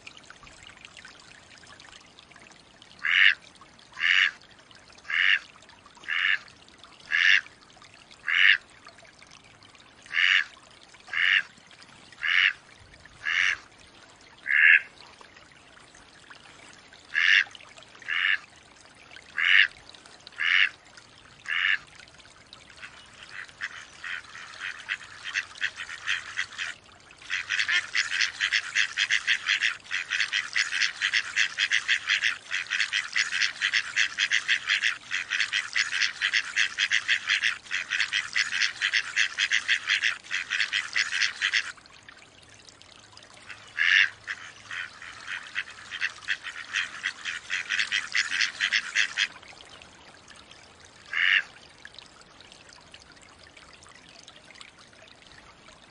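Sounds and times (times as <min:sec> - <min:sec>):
loud duck quacks: 0:03.0 - 0:03.4, 0:04.0 - 0:04.4, 0:05.1 - 0:05.4, 0:06.1 - 0:06.4, 0:07.1 - 0:07.4, 0:08.2 - 0:08.6, 0:10.1 - 0:10.5, 0:11.1 - 0:11.5, 0:12.2 - 0:12.6, 0:13.2 - 0:13.6, 0:14.5 - 0:14.8, 0:17.1 - 0:17.4, 0:18.1 - 0:18.4, 0:19.4 - 0:19.7, 0:20.4 - 0:20.7, 0:21.5 - 0:21.8, 0:23.3 - 0:41.7, 0:43.5 - 0:49.3, 0:51.1 - 0:51.5.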